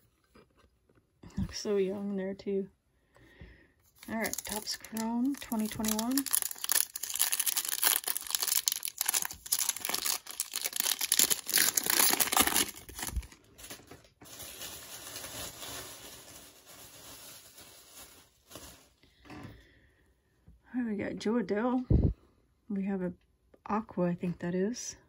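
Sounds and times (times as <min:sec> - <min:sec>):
foil wrapper crinkling and tearing: 0:03.9 - 0:19.0
wrapper rustle: 0:03.9 - 0:19.0.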